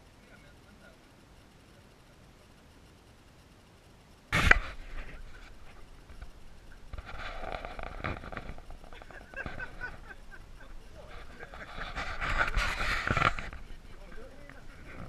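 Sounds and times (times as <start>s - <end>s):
people talking and calling out: 4.7s - 15.0s.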